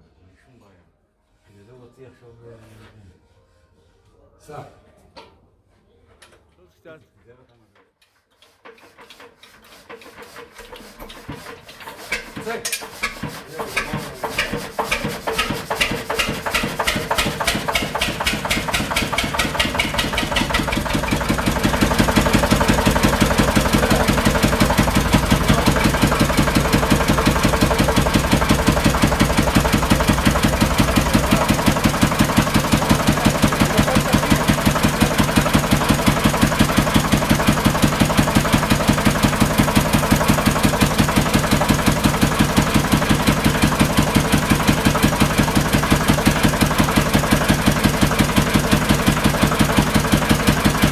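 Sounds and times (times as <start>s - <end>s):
stationary engine starting and running: 10.3s - 50.9s.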